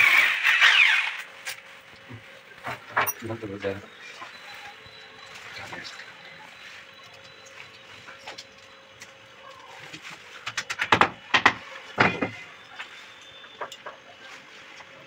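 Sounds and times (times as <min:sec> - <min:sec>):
sharp clicks and knocks: 0:09.9 - 0:14.0.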